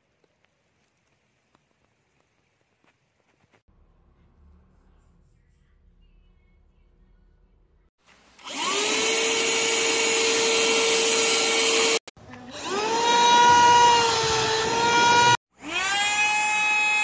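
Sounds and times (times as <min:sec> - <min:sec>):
handheld vacuum motor whining: 0:08.4 - 0:17.0.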